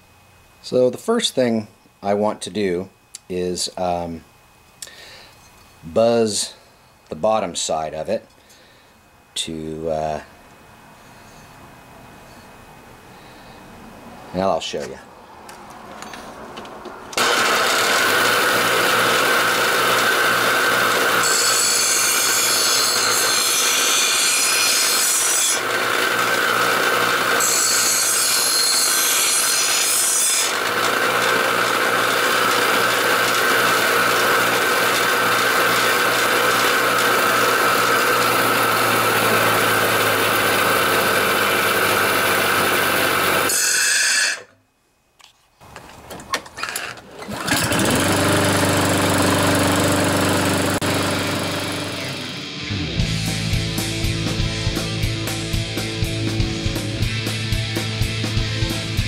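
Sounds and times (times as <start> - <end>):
bench grinder motor whine: 17.1 - 44.5, 46.8 - 52.6
metal grinding hiss: 43.4 - 44.5.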